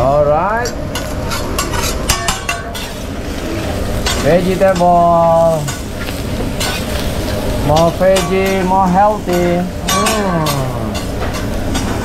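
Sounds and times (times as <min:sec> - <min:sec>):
food sizzling: 0:00.8 - 0:12.0
spatulas scraping on griddle: 0:00.9 - 0:12.0.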